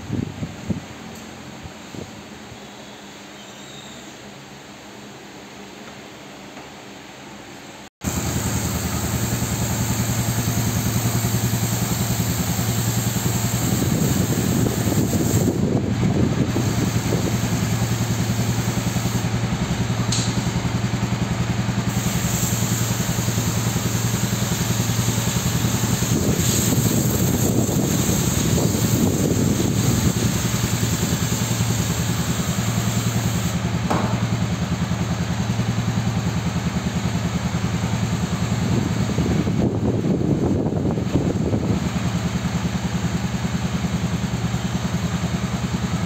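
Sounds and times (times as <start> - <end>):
motorcycle engine idling: 8.1 - 15.0, 16.3 - 46.0.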